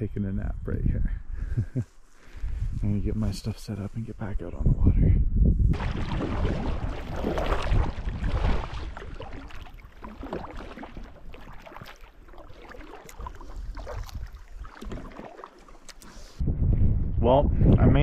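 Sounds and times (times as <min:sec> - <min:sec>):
water splashing against boat: 0:05.8 - 0:16.4.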